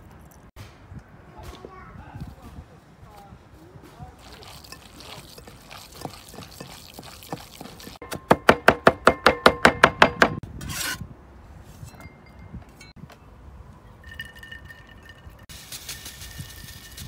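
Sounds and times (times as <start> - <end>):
hands kneading meat in bowl: 4.1 - 8.1
cleaver chopping on wooden board: 8.0 - 10.4.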